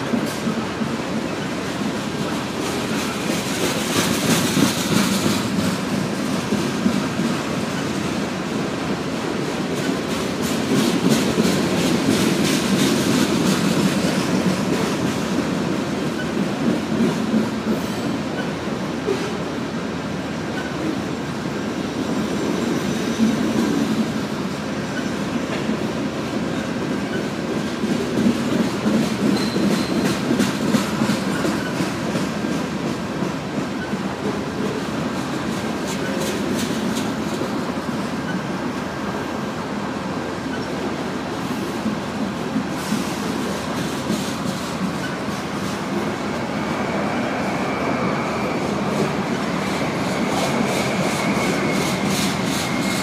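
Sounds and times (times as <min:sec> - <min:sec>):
clickety-clack over rail joints: 0:00.0 - 0:47.4, 0:48.5 - 0:53.0
train wheels rumbling on rail: 0:00.0 - 0:53.0.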